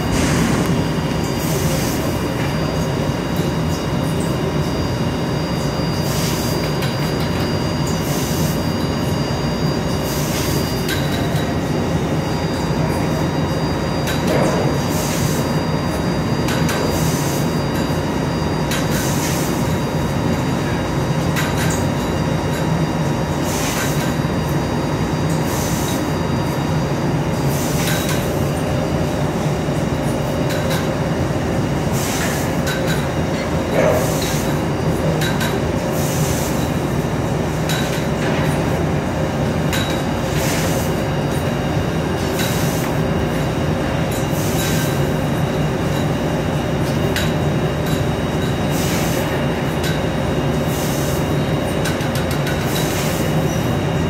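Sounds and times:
laser cutter low mechanical hum: 0.0 - 54.0.

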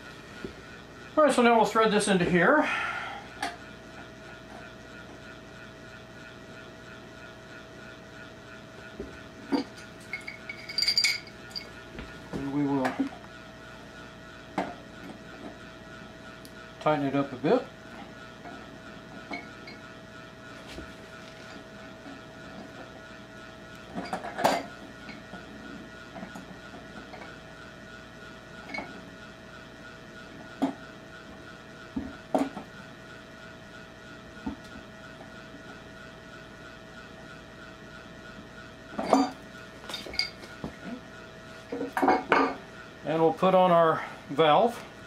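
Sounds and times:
faint hum: 0.0 - 45.0
wrench clinking on metal fittings: 10.1 - 11.7.

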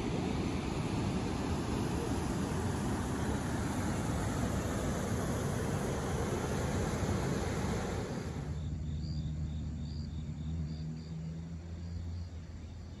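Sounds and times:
water rushing: 0.0 - 8.6
insect chirping: 7.8 - 13.0.

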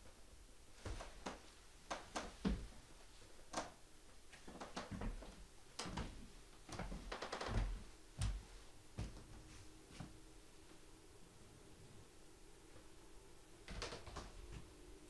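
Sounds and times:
footsteps on wooden floorboards: 4.4 - 10.1.

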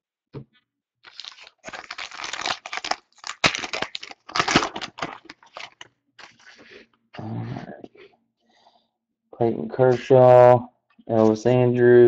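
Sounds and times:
foil wrapper tearing and crinkling: 1.0 - 6.8.

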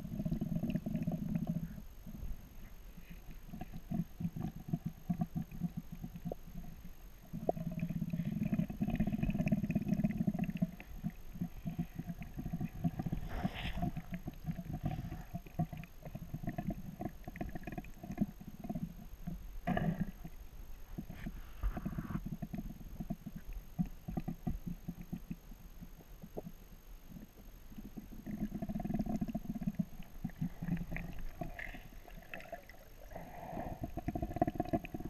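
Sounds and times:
muffled underwater water rush: 0.0 - 35.0
underwater crackles and knocks: 3.3 - 26.6, 33.6 - 35.0.

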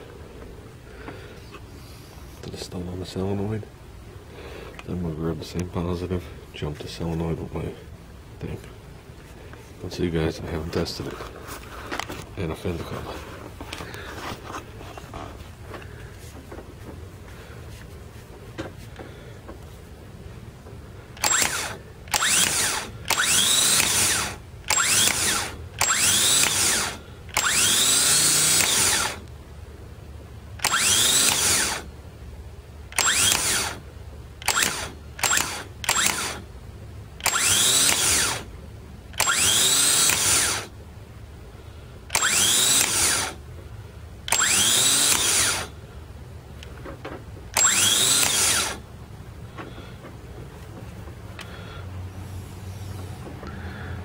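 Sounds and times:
starter motor whine: 21.1 - 29.3, 30.6 - 31.9, 32.9 - 36.5, 37.2 - 38.5, 39.1 - 40.8, 42.1 - 43.4, 44.2 - 45.8, 47.5 - 48.9.

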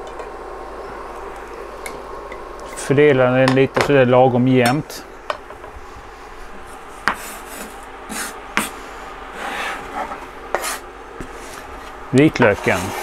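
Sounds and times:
knife scraping cutting board: 9.4 - 13.0.

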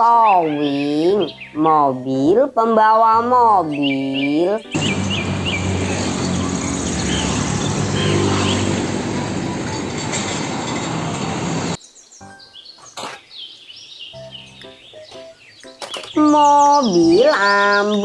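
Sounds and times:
birds chirping: 0.0 - 2.4, 3.5 - 18.0
soft music: 0.0 - 7.9, 10.9 - 12.8, 14.2 - 18.0
traffic noise: 4.6 - 11.8
truck diesel engine running: 4.8 - 11.8.

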